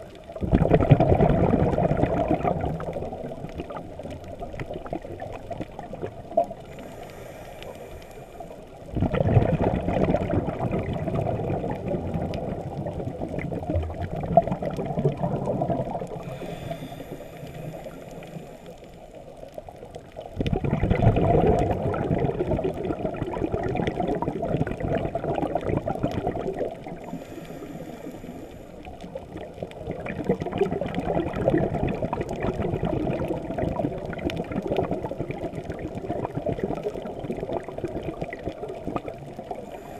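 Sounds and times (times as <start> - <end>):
exhaled bubbles gurgling underwater: 0.0 - 39.9
high hiss of inhalation: 6.8 - 8.6, 16.2 - 18.9, 27.1 - 28.8.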